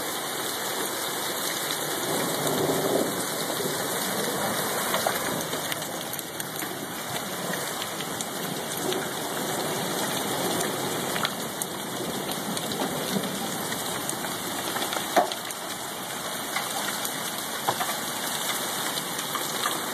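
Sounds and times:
rain and hail falling: 0:00.0 - 0:19.9
hailstones ticking: 0:01.4 - 0:19.9.

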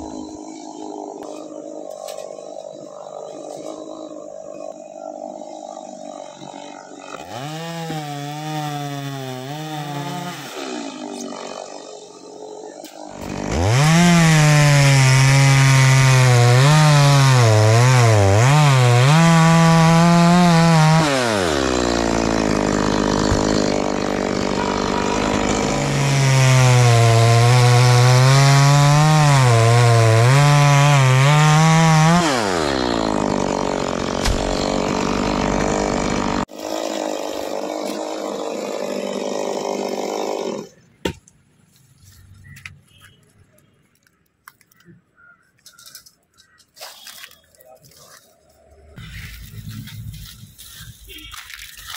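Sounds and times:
chainsaw cutting wood: 0:05.6 - 0:41.2.

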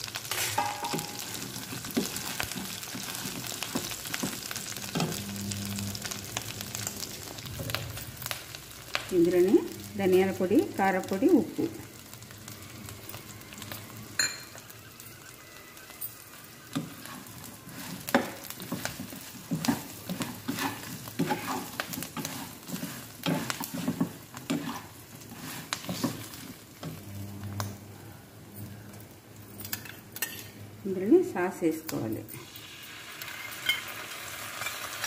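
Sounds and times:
spatula scraping and tapping wok: 0:00.0 - 0:05.2, 0:16.6 - 0:27.0, 0:29.7 - 0:30.6
light sizzle: 0:00.0 - 0:35.0.

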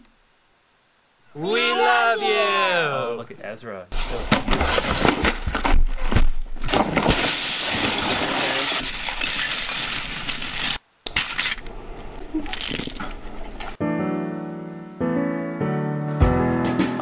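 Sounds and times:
plastic bricks clattering: 0:04.2 - 0:11.7, 0:12.4 - 0:13.2.

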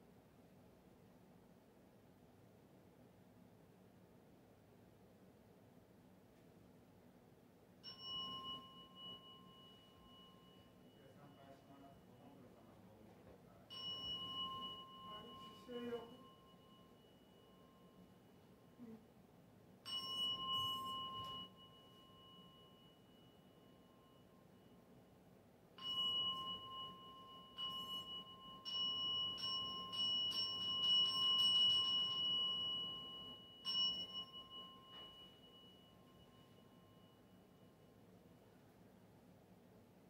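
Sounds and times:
small temple bell ringing: 0:07.7 - 0:38.6.

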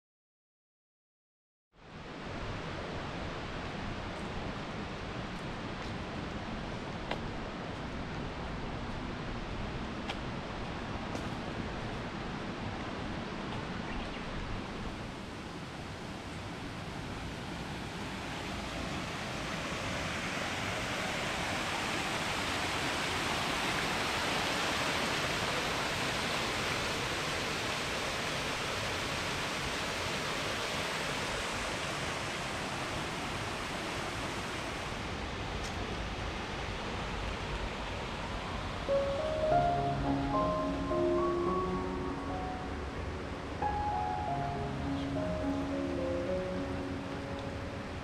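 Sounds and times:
waterfall rushing: 0:14.7 - 0:48.0.

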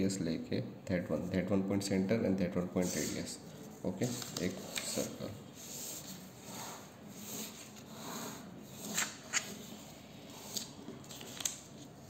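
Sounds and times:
faint scratching of drawing: 0:04.0 - 0:10.7.

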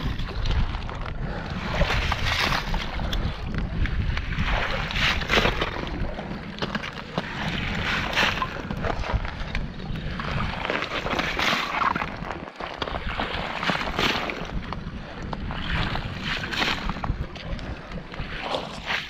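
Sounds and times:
water sloshing: 0:00.0 - 0:19.0
wind rumbling on microphone: 0:00.0 - 0:19.0
ice crunching: 0:04.8 - 0:13.0.

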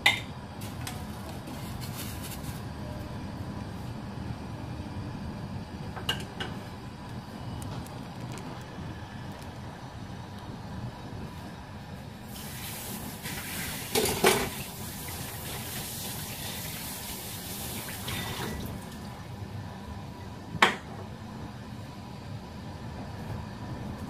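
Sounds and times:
tap water running into sink: 0:12.4 - 0:19.0.

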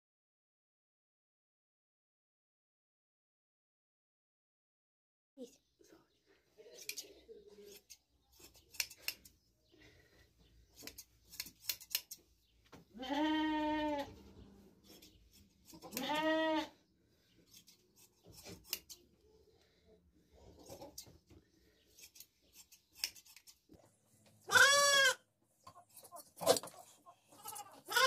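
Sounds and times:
hand shears snipping: 0:07.7 - 0:09.3, 0:10.8 - 0:12.2, 0:17.5 - 0:19.1, 0:21.9 - 0:23.7
sheep bleating: 0:12.9 - 0:14.1, 0:15.8 - 0:16.8, 0:24.5 - 0:25.2, 0:27.4 - 0:28.0.

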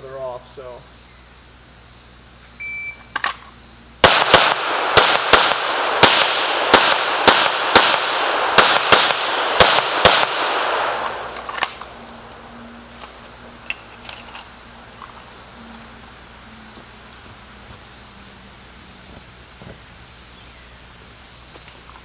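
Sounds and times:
shot timer beep: 0:02.6 - 0:03.1
pistol shots echoing: 0:04.0 - 0:12.3.

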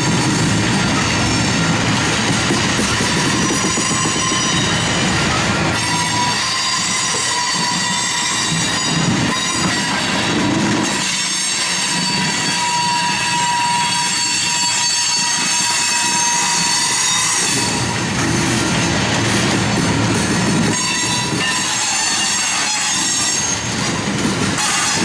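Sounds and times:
train wheels rumbling on rail: 0:00.0 - 0:25.0
high-pitched wheel squeal: 0:03.2 - 0:10.0, 0:10.9 - 0:17.9, 0:20.7 - 0:23.7.

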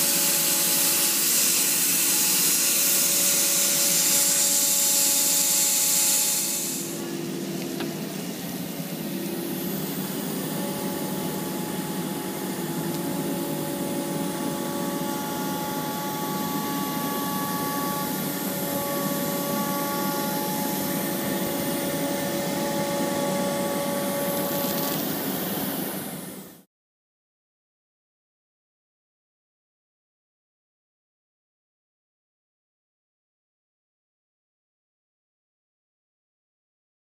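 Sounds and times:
cnc router cutting plastic: 0:00.0 - 0:26.6.

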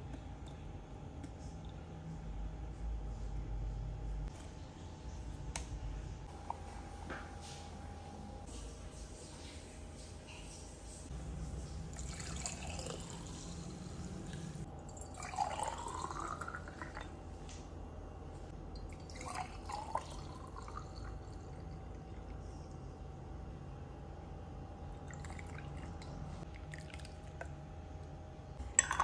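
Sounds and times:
water pouring into glass jar: 0:11.9 - 0:17.1, 0:18.8 - 0:22.4, 0:25.0 - 0:27.5, 0:28.8 - 0:29.0.

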